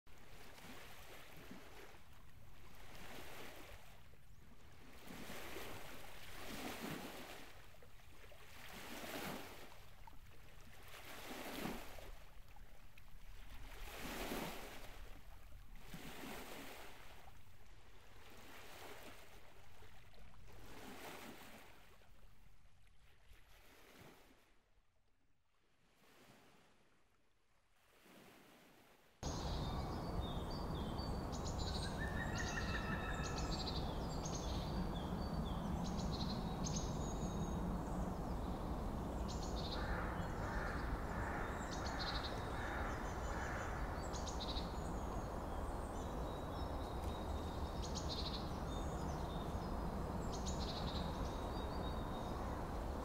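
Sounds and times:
sea surf breaking: 29.2s - 53.0s.

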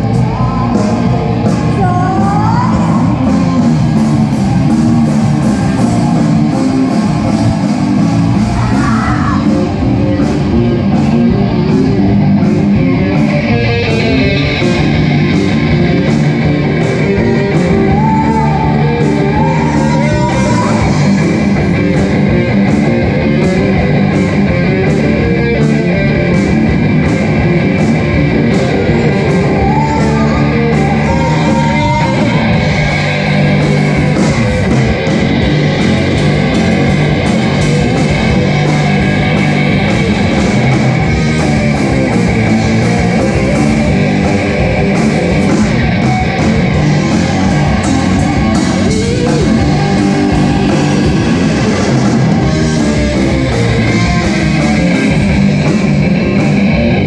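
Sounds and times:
person singing: 0.0s - 3.6s, 16.6s - 22.0s, 28.5s - 34.4s, 46.0s - 55.0s
electric guitar: 0.0s - 57.0s
live rock band playing: 0.0s - 57.0s.

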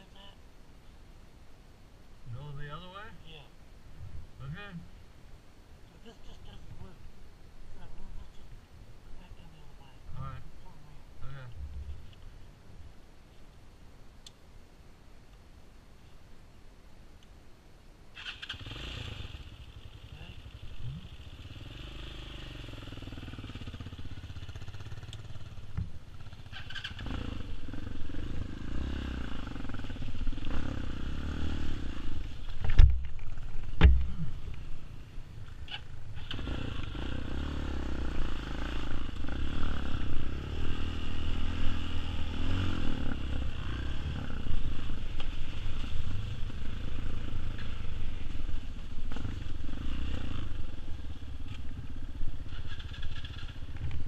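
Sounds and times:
dirt bike engine running: 18.8s - 35.0s
sharp knocks: 33.8s - 34.2s.

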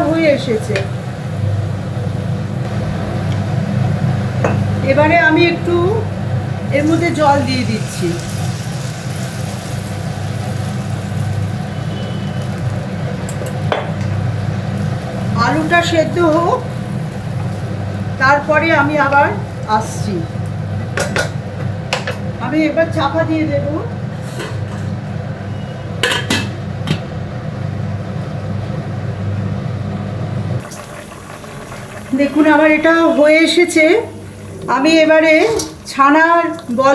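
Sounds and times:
food sizzling and bubbling: 0.0s - 22.4s, 30.6s - 36.9s.

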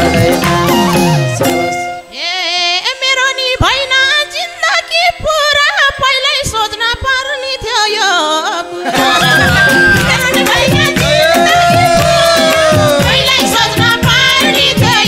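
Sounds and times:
folk band playing: 0.0s - 2.2s, 8.8s - 15.0s
folk melody with vibrato: 0.0s - 5.2s, 8.2s - 15.0s.

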